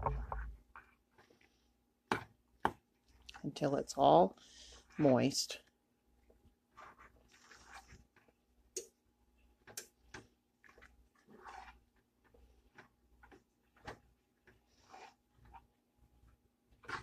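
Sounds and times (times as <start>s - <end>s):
fork scraping bowl: 6.8s - 8.0s, 10.8s - 11.8s, 14.7s - 15.6s.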